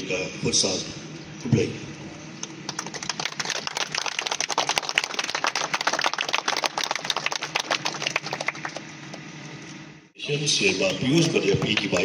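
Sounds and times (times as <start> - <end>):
crowd applauding: 2.6 - 9.6, 10.9 - 12.0.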